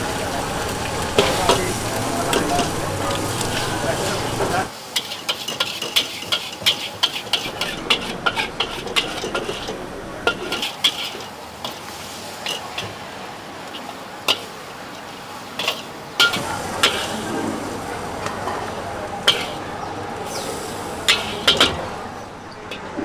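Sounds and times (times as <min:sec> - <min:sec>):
faint sizzle: 0:00.0 - 0:23.0
metal spatula clinking on a wok: 0:05.0 - 0:11.8, 0:15.6 - 0:17.1, 0:21.1 - 0:21.8.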